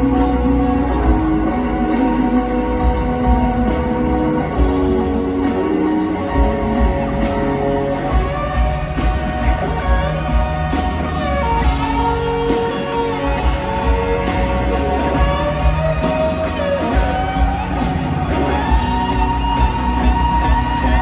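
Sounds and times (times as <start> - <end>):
drums: 0.0 - 21.0
electric guitar: 0.0 - 21.0
live band playing in an arena: 0.0 - 21.0.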